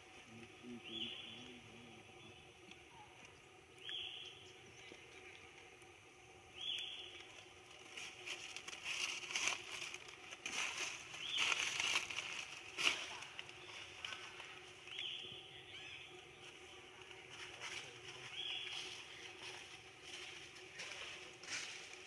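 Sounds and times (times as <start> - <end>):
outdoor background noise: 0.0 - 22.0
rustling and crackling: 7.1 - 15.1.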